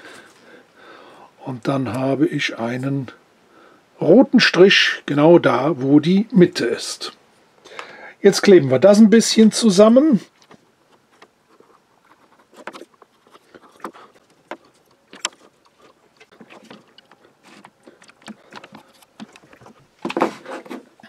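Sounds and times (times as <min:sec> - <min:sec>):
light wooden clicks and knocks: 0:10.3 - 0:21.0.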